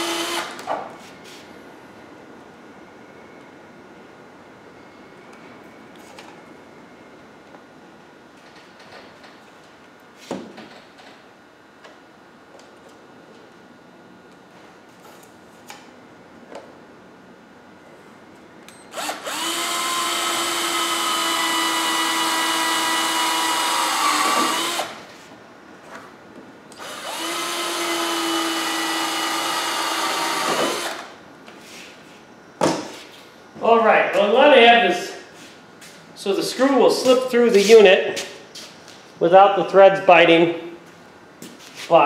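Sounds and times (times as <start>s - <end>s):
cordless drill whining: 0.0s - 0.6s, 18.9s - 25.0s, 26.8s - 31.1s.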